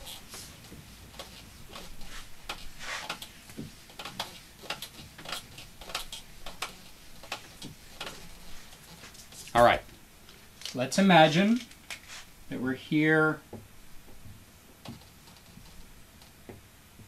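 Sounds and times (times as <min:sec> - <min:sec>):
eraser scrubbing a whiteboard: 0:00.0 - 0:09.6, 0:12.1 - 0:12.3.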